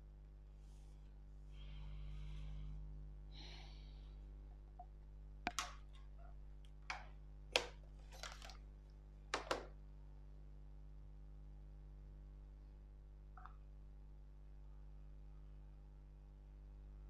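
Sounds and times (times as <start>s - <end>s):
plastic ruler clicks and taps: 5.5s - 5.8s.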